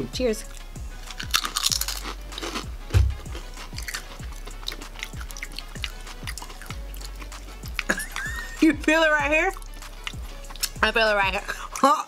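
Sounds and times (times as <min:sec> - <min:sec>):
background music with beat: 0:00.0 - 0:11.9
tortilla chips crunching: 0:00.5 - 0:08.4, 0:09.5 - 0:10.8
people chewing: 0:00.5 - 0:10.8.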